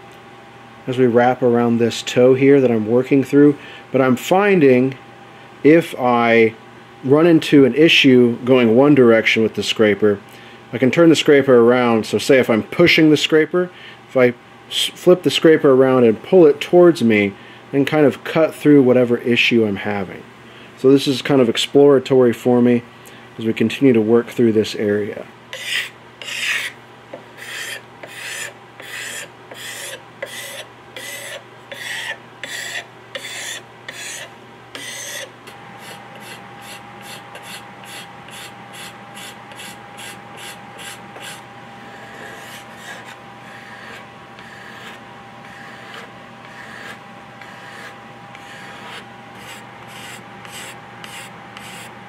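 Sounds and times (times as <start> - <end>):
scraper scraping wood: 25.5 - 26.8, 27.4 - 51.9
sandpaper rubbing wood: 25.6 - 26.8, 27.4 - 51.9.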